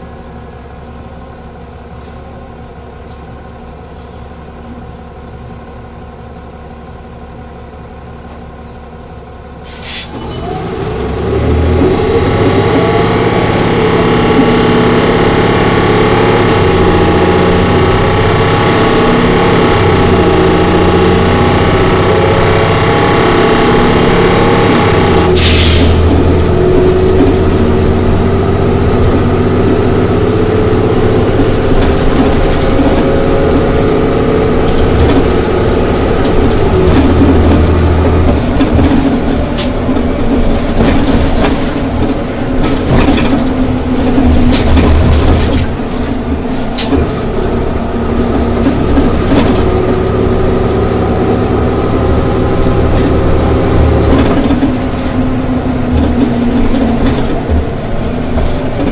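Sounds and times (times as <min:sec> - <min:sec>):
bus engine running: 0:00.0 - 0:58.9
knocks and rattles: 0:25.8 - 0:58.9.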